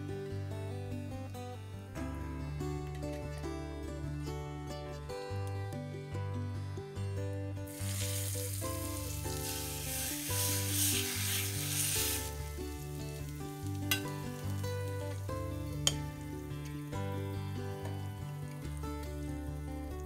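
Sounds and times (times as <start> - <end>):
hot oil sizzling: 7.7 - 20.0.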